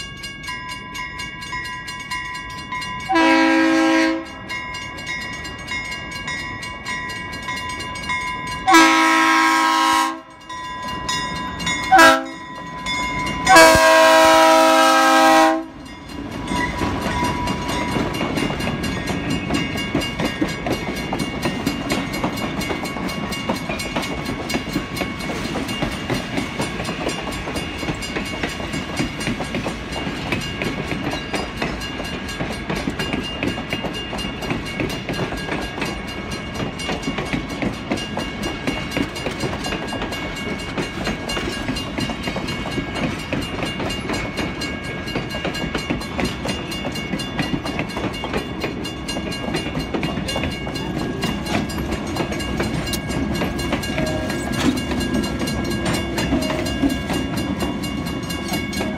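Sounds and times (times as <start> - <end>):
train rumble and wheel clatter: 0.0 - 58.9
train air horn: 3.1 - 4.4, 8.7 - 10.3, 11.9 - 12.4, 13.5 - 15.8, 54.0 - 54.4.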